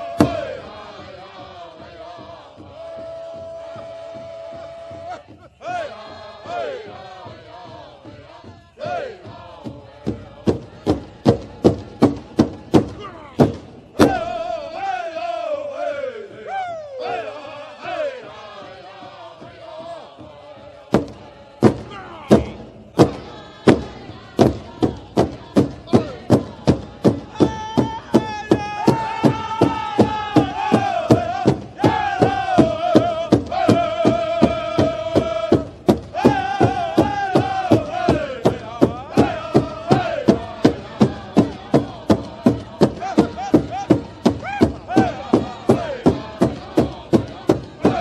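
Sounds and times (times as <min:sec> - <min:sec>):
drum beat: 0:00.0 - 0:15.0, 0:16.2 - 0:48.0
voice chanting: 0:27.3 - 0:48.0.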